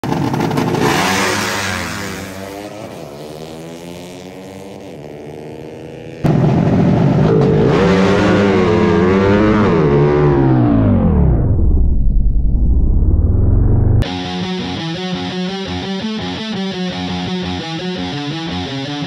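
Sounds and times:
motorcycle engine close up: 0:00.0 - 0:11.0
motorcycle engines revving: 0:00.0 - 0:11.3.

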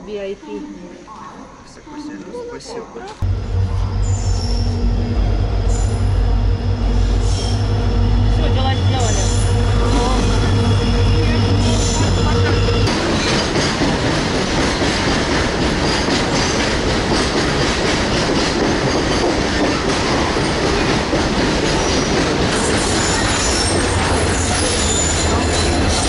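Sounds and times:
train wheels rumbling on track: 0:03.2 - 0:26.0
faint high wheel squeal: 0:07.0 - 0:07.8.

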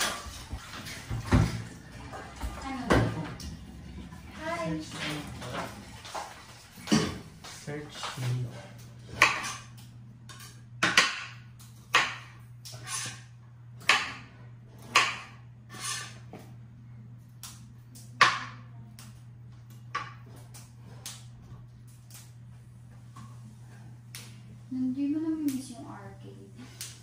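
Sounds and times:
steady low hum: 0:00.0 - 0:27.0
knife chopping on cutting board: 0:09.1 - 0:09.7, 0:10.8 - 0:13.2, 0:13.8 - 0:16.2.

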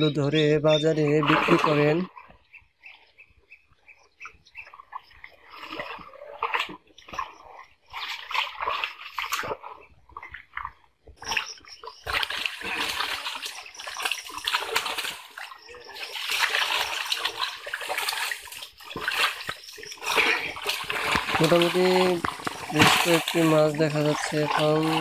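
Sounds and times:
water splashing and sloshing: 0:00.1 - 0:25.0
fish thrashing in a net: 0:12.0 - 0:25.0.

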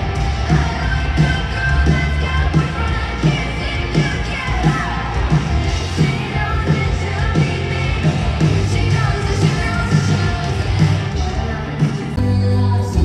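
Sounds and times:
steady drum beat: 0:00.0 - 0:12.3
pop song with singing: 0:00.0 - 0:13.0.

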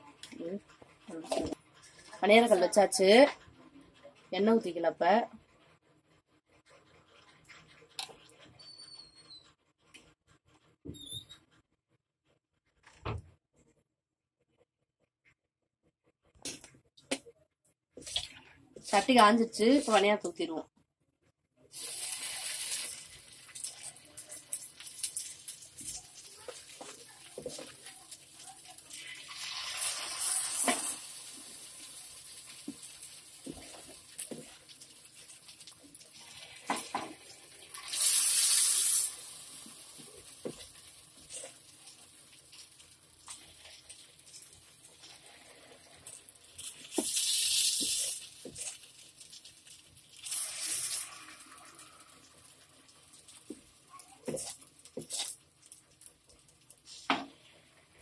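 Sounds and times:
batter sizzling in hot oil: 0:21.7 - 0:58.0.

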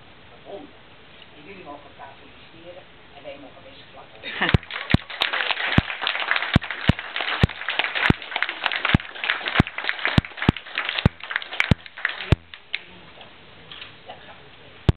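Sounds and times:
people applauding: 0:04.3 - 0:12.9.

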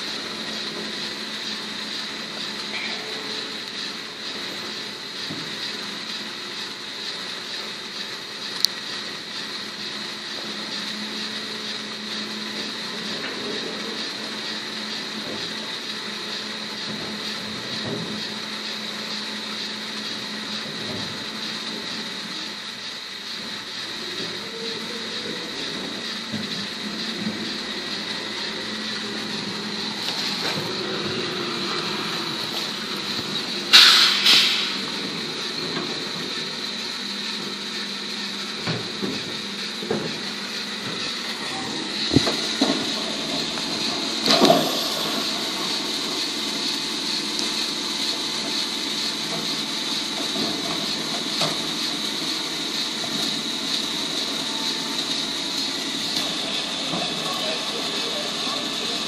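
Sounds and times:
garbage truck engine drone: 0:00.0 - 0:59.0
wheelie bins thumping and clanking: 0:16.8 - 0:18.4, 0:38.6 - 0:47.1, 0:48.0 - 0:54.4.

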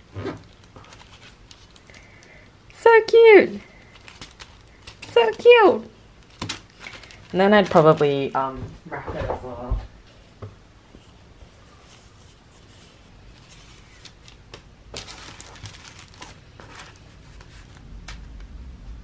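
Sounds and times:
tissue paper rustling and crinkling: 0:00.4 - 0:02.3, 0:03.3 - 0:08.3, 0:11.8 - 0:18.2.

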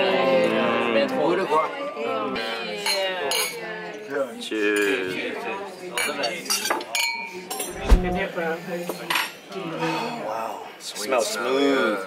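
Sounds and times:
cutlery and dishes clattering: 0:06.0 - 0:07.8.

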